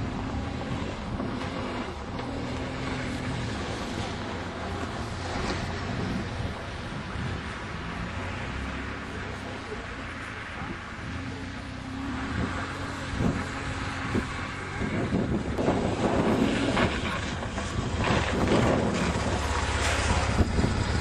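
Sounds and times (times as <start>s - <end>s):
motorcycle engine running: 12.4s - 21.0s.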